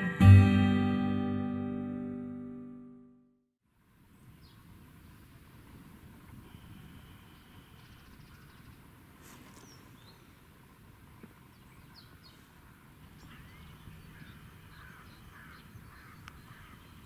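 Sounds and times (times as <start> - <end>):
faint birdsong: 4.0 - 17.0.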